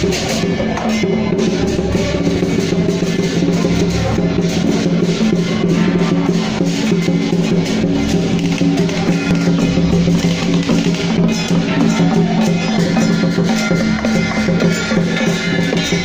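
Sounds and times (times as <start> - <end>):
busy drumming and percussion: 0.0 - 16.0.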